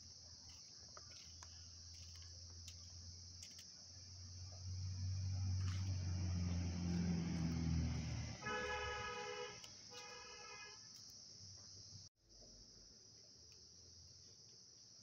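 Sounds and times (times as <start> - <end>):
engine rumbling: 0.4 - 10.3
car horn honks: 8.4 - 10.9.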